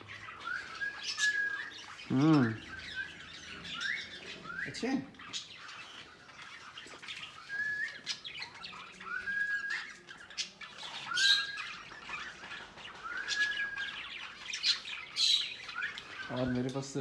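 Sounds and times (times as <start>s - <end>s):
parrot whistled call: 0.3s - 4.8s, 7.4s - 10.0s.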